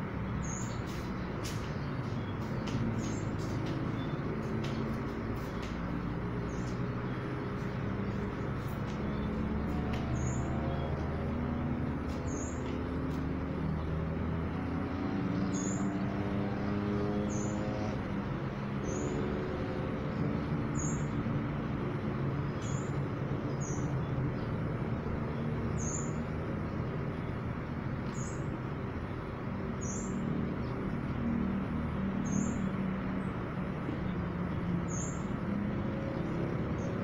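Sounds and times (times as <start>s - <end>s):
low vehicle rumble: 0.0s - 37.0s
small bird chirping: 0.2s - 13.9s.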